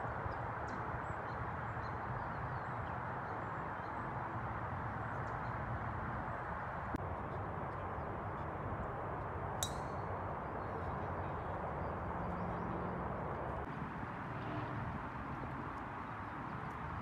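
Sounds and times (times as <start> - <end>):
golf club striking ball: 9.6 - 9.9.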